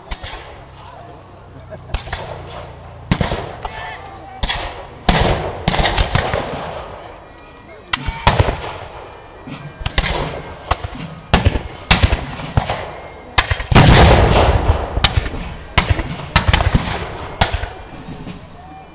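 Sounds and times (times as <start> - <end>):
cannon blast: 1.9 - 3.8, 4.4 - 6.9, 10.8 - 17.7
musket shots: 4.4 - 7.0, 9.5 - 18.4.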